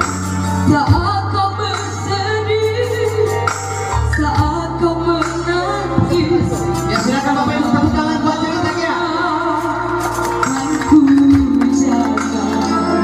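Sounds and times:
electronic keyboard chords and bass: 0.0 - 13.0
girl singing into microphone: 0.6 - 6.9.

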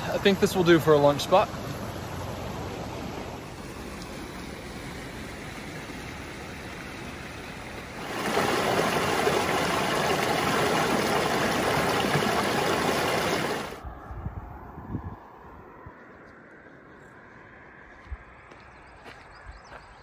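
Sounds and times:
river rushing over stones: 0.5 - 13.8.

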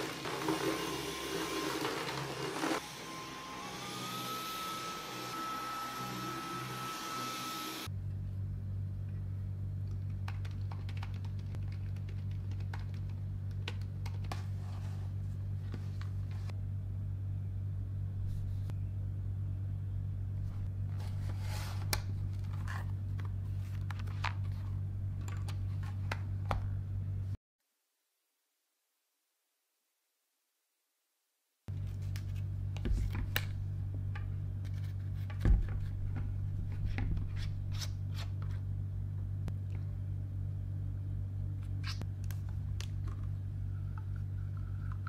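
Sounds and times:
vacuum cleaner on carpet: 0.0 - 7.9
steady low hum: 7.8 - 27.4, 31.7 - 45.0.

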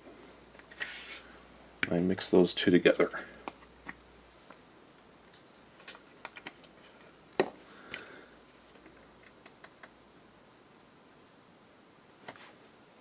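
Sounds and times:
soft rustle: 0.1 - 1.5, 12.2 - 12.8.

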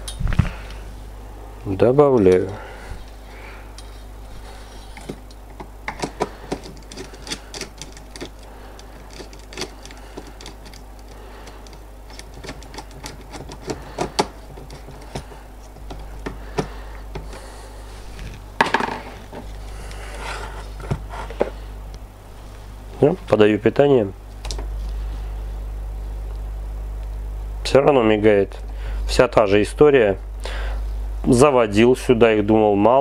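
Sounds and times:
handling noise: 2.2 - 23.1.

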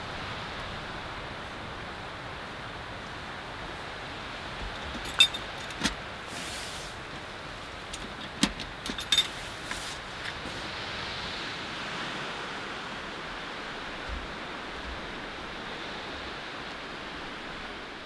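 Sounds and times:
steady hiss: 0.0 - 18.0
latch clicks: 4.8 - 6.0, 7.9 - 9.3
metal stove door clinking: 4.9 - 5.9.

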